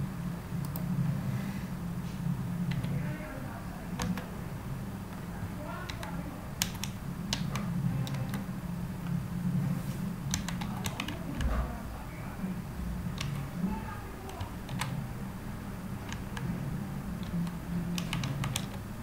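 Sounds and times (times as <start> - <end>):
steady low hum: 0.0 - 19.0
keyboard keystroke clicks: 0.6 - 0.9, 2.7 - 3.0, 3.9 - 4.3, 5.9 - 8.5, 10.3 - 11.5, 13.1 - 13.5, 14.2 - 15.0, 16.1 - 16.5, 17.2 - 18.8.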